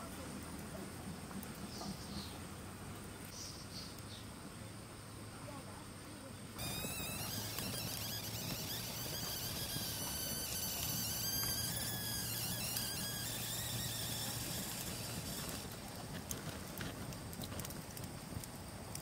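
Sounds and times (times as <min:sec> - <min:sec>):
campfire crackling and popping: 0:00.0 - 0:04.6, 0:06.6 - 0:19.0
high wavering insect drone: 0:06.6 - 0:15.8.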